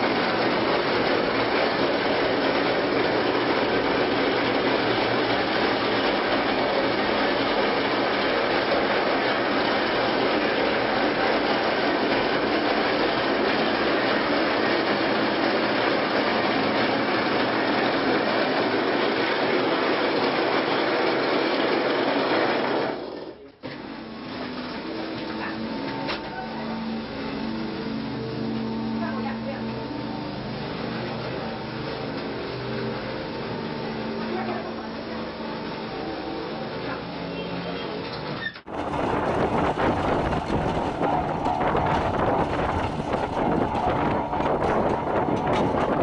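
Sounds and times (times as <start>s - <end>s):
plastering machine rattling: 0.0s - 25.6s, 38.2s - 46.0s.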